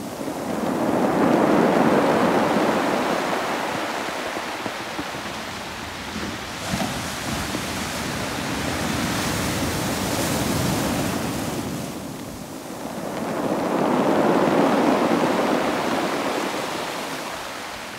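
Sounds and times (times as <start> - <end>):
waves breaking on pebble beach: 0.0 - 17.9.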